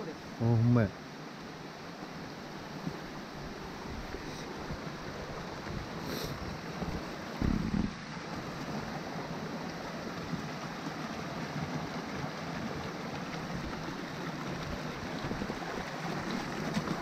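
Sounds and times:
stream rushing over boulders: 0.0s - 17.0s
low rumble: 7.4s - 8.0s.

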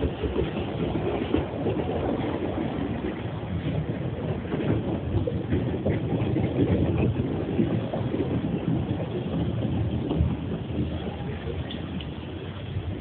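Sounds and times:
vehicle rumbling on slushy road: 0.0s - 13.0s.

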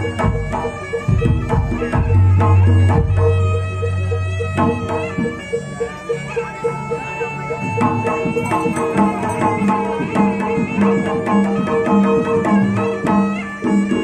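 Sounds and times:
hand drum strokes: 0.0s - 14.0s
reedy wind melody: 0.0s - 14.0s.

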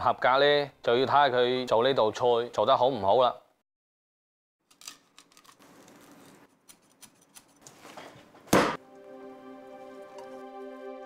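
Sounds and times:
loud thud: 8.5s - 8.8s
soft background music: 8.8s - 11.0s.

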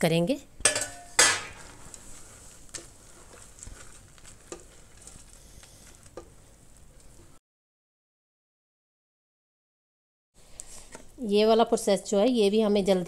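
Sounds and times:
faint sizzling hiss: 0.7s - 7.4s
spatula stirring syrup: 1.6s - 7.3s.

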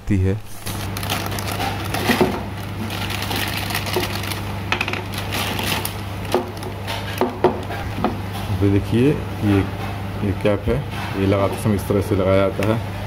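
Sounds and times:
steady low hum: 0.0s - 13.0s
plastic bag crinkling: 0.4s - 7.7s
scissors snipping plastic bag: 0.6s - 4.4s, 5.1s - 7.7s.

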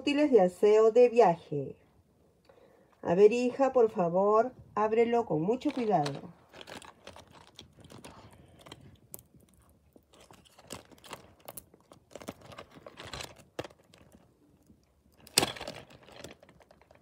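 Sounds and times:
plastic pouch crinkling: 5.5s - 17.0s.

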